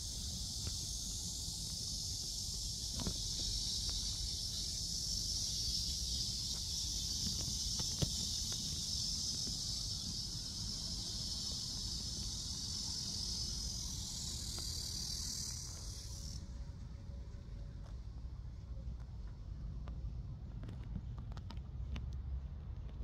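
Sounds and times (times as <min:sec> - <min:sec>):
cicadas buzzing: 0:00.0 - 0:18.1.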